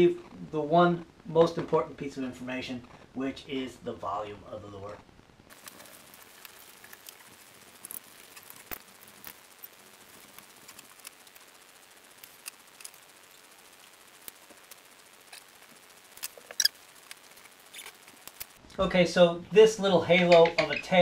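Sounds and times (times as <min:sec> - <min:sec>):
small clicks: 0:06.4 - 0:18.6
marker squeaking on whiteboard: 0:20.2 - 0:21.0.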